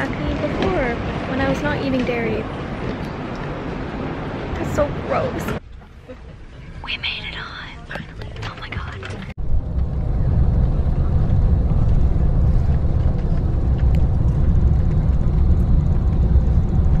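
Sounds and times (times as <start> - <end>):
bus driving rumble: 0.0 - 17.0.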